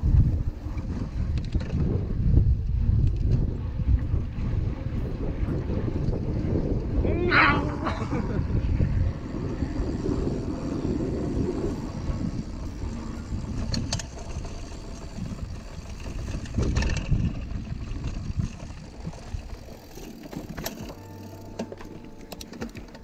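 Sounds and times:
bike clicks and rattles: 0.0s - 23.0s
bike tyre noise: 0.0s - 23.0s
wind rumble on microphone: 0.0s - 23.0s.

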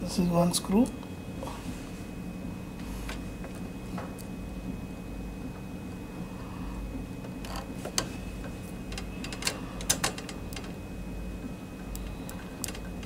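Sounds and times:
steady low hum: 0.0s - 13.0s
screwdriver clicks on small parts: 11.9s - 12.9s.

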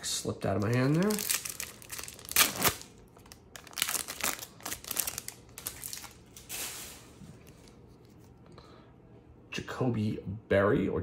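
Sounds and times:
wrapper crinkling and tearing: 0.4s - 7.8s.

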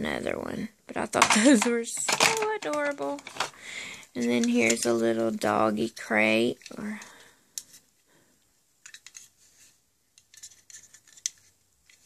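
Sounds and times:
plastic toy pieces clicking: 1.2s - 3.6s, 8.8s - 9.3s.

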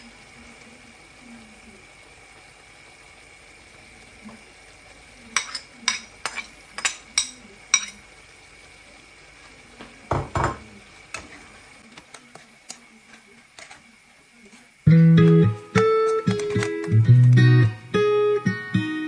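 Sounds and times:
spoon stirring in pan: 5.0s - 17.3s.

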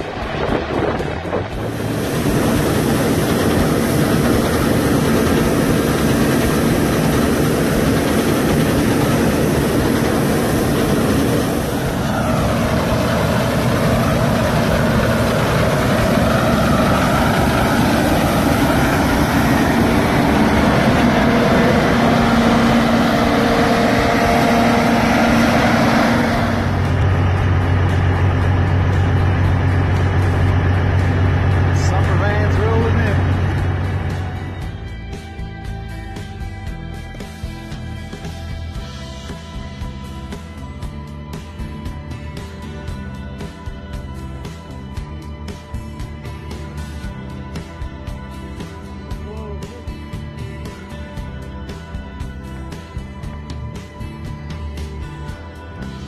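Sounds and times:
combine harvester engine drone: 0.0s - 56.0s
held machinery whine: 0.0s - 56.0s.

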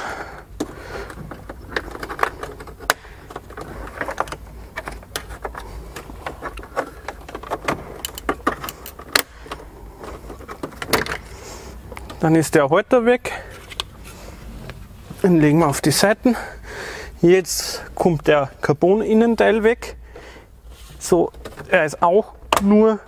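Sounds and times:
plastic trim clicking and snapping: 0.6s - 5.6s, 6.3s - 9.7s.

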